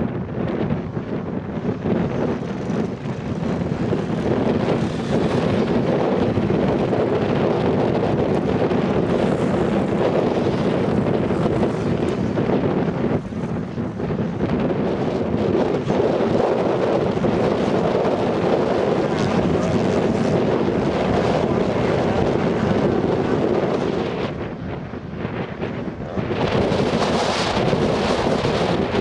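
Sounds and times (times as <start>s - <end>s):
wind buffeting microphone: 0.0s - 29.0s
motocross bike engines revving: 8.2s - 13.6s, 15.7s - 23.9s.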